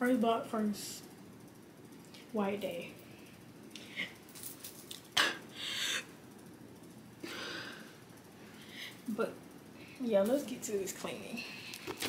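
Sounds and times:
soft breath: 7.2 - 9.1.

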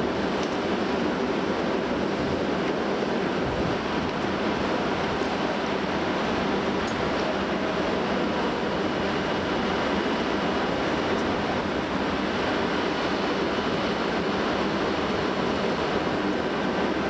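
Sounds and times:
diesel railcar rumble: 0.0 - 17.0
wind on microphone: 3.2 - 5.3.

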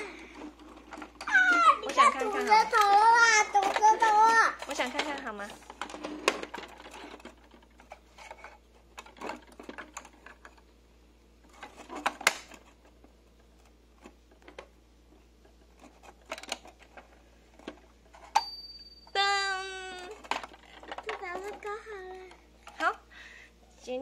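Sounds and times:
plastic toy clicks and knocks: 0.4 - 10.6, 15.8 - 18.5, 19.9 - 21.7.

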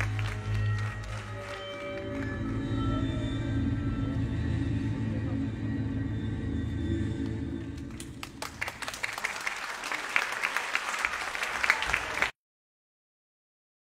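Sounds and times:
audience applause: 0.0 - 2.7, 7.6 - 12.4
low music: 0.0 - 9.2.

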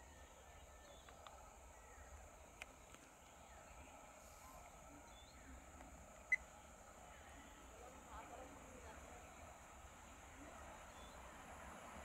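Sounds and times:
steady high hiss: 0.0 - 12.0.

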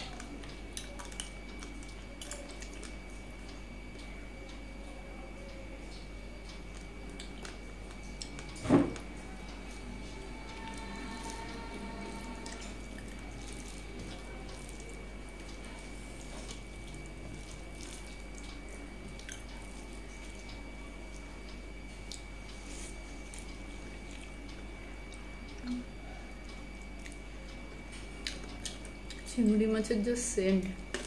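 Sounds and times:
fingers mixing food wet clicks: 0.0 - 4.7, 5.4 - 25.7, 26.3 - 29.6
electrical hum: 0.0 - 31.0
thin high whine: 8.6 - 15.1.

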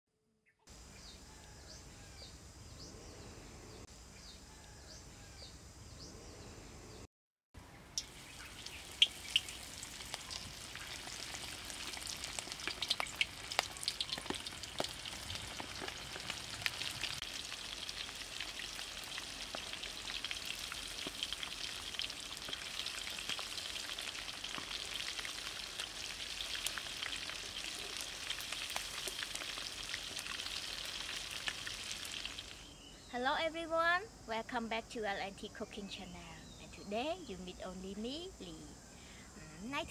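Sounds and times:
deep-frying sizzle and pops: 7.8 - 32.7.

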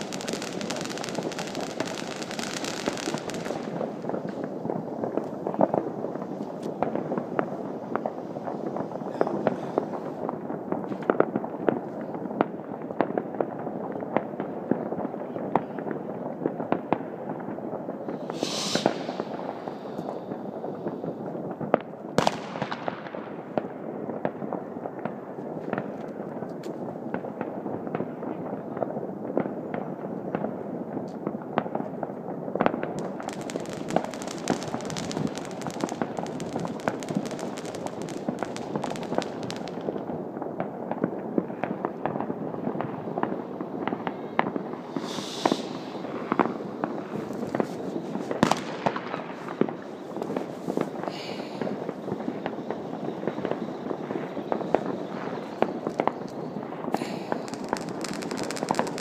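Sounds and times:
firework hiss: 0.0 - 10.3, 18.0 - 21.3, 33.0 - 40.0, 44.6 - 59.0
dense firecracker crackling: 0.0 - 59.0
fireworks popping and banging: 0.0 - 59.0.

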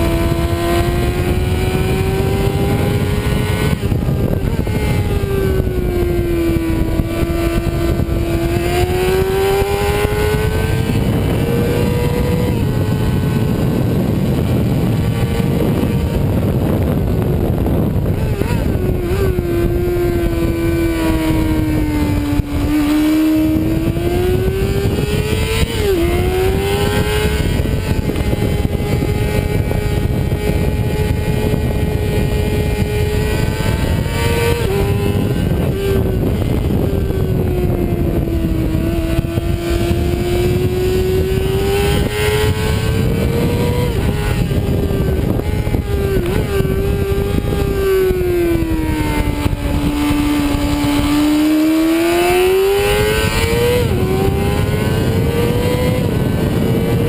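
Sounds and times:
motorcycle engine revving: 0.0 - 57.0
wind rush on microphone: 0.0 - 57.0.

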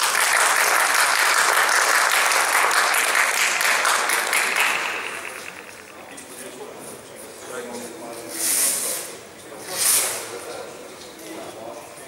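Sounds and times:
spectators applauding: 0.0 - 6.2.

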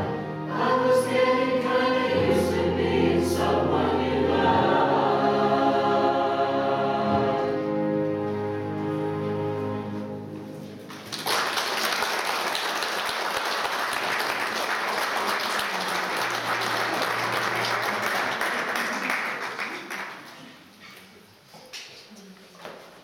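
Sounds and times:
choir singing: 0.0 - 10.3, 15.4 - 18.9
audience applauding: 10.9 - 20.6.

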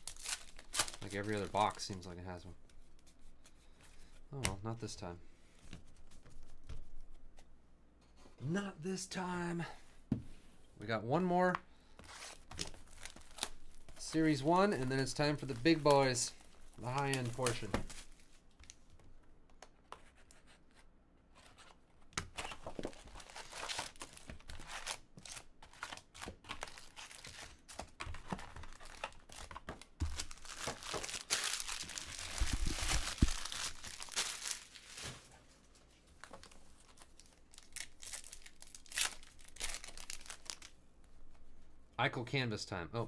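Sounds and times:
foil wrappers crinkling and tearing: 0.0 - 2.1, 12.2 - 18.3, 22.6 - 35.3, 36.4 - 40.8.

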